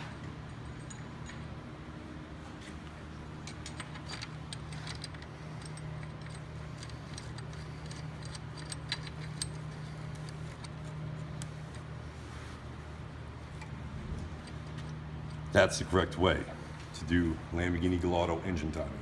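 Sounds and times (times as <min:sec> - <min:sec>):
steady low hum: 0:00.0 - 0:19.0
metal tools clinking: 0:00.1 - 0:01.7, 0:03.4 - 0:10.9.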